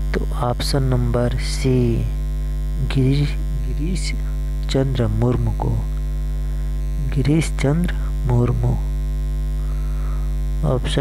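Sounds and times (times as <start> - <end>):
person speaking: 0.0 - 2.2, 2.8 - 6.0, 6.9 - 9.0, 10.6 - 11.0
electrical mains hum: 0.0 - 11.0.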